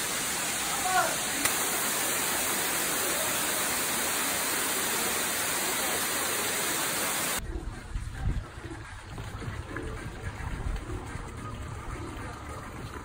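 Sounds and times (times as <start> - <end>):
waterfall roaring over rocks: 0.0 - 7.4.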